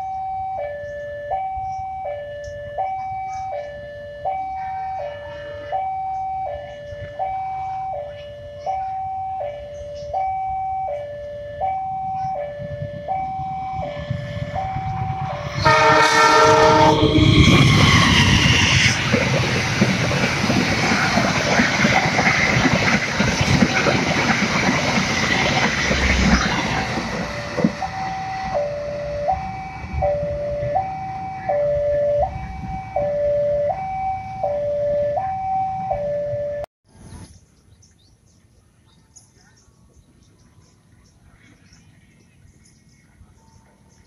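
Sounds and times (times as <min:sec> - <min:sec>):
level crossing alarm two-tone signal: 0:00.0 - 0:19.0, 0:27.2 - 0:36.7
passing train wheels and carriages: 0:00.0 - 0:37.5
locomotive horn: 0:12.2 - 0:18.1.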